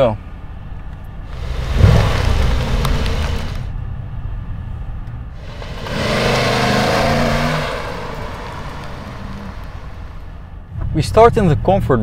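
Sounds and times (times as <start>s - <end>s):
car engine revving: 1.2s - 10.7s.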